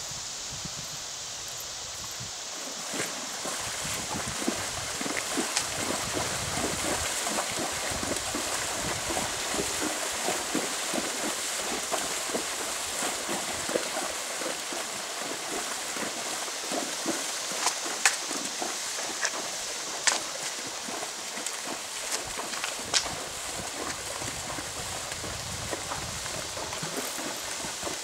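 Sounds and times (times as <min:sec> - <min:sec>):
hooves splashing through water: 0:01.5 - 0:28.0.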